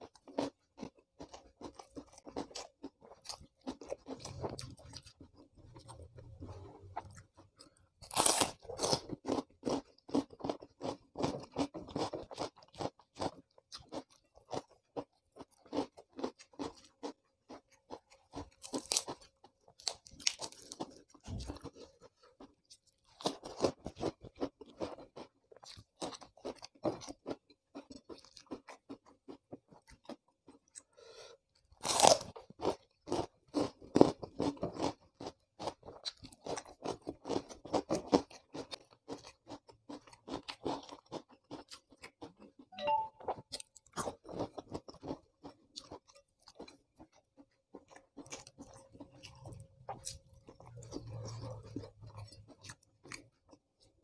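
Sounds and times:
crunching raw vegetables: 0.0 - 30.9, 43.6 - 54.0.

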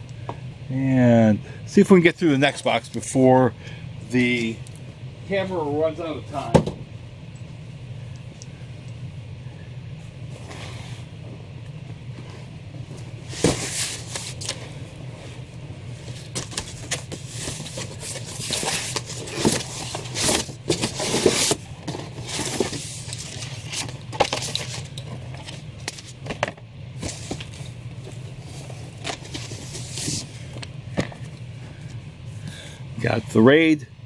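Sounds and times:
steady low hum: 0.0 - 34.0
rustling of contents: 11.9 - 32.4
cardboard flaps scraping: 12.2 - 26.3, 27.0 - 31.3.

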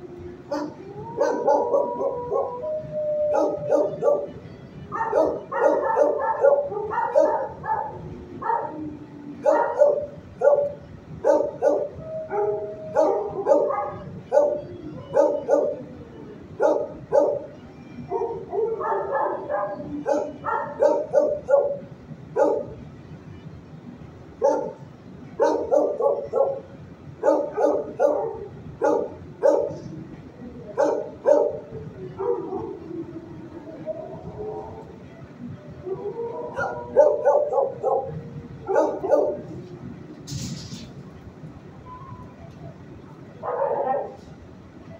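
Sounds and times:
dogs barking: 0.4 - 16.0, 16.6 - 22.8, 24.4 - 30.0, 30.7 - 33.0, 35.8 - 39.6, 43.4 - 44.2.

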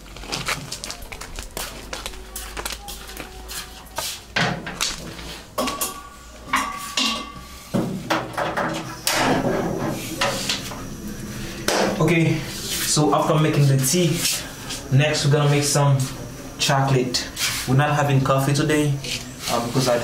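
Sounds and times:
gas burner hissing: 3.4 - 20.0
metallic ringing: 5.6 - 7.7
metal pot clanking on stove: 5.6 - 10.5.

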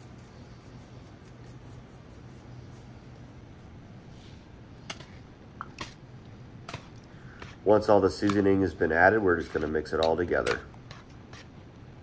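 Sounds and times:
spice shaker shaking: 0.0 - 3.1.

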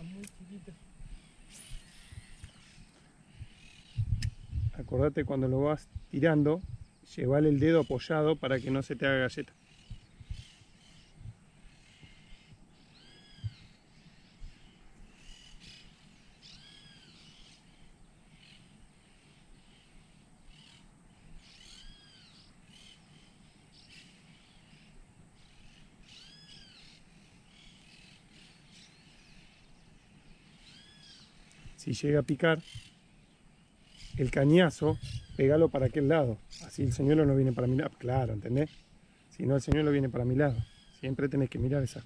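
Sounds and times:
bird chirps: 0.0 - 5.1, 5.8 - 42.0
bird arched call: 9.6 - 29.7, 30.3 - 33.0, 33.8 - 39.2, 40.2 - 41.3.

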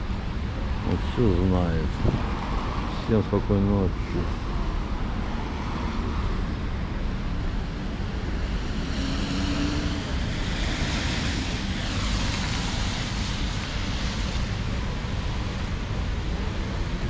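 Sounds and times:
street traffic noise: 0.0 - 17.0
wind buffeting microphone: 1.8 - 3.0.

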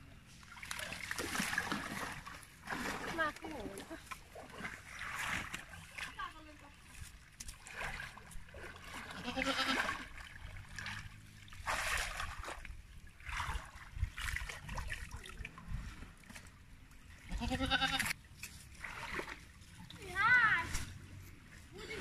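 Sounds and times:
water splashing and draining: 0.4 - 17.3, 17.9 - 21.0
goat bleating: 9.2 - 9.9, 17.3 - 18.1.

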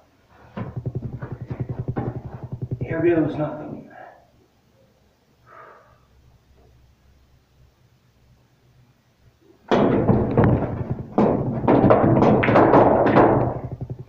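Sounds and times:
pool balls clacking: 0.6 - 3.3, 9.7 - 14.0
cue striking ball: 11.3 - 14.0.

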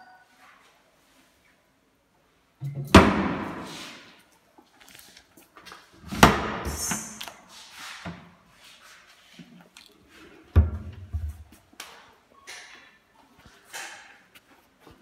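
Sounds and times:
cabinet doors banging shut: 2.7 - 3.8, 6.1 - 7.0.

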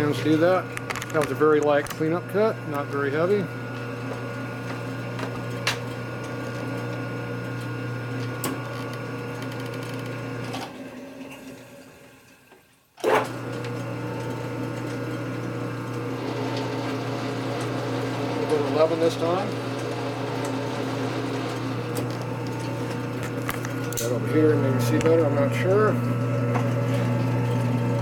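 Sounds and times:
metal lathe humming: 0.0 - 10.6, 13.3 - 28.0
control clicks: 0.7 - 2.1.

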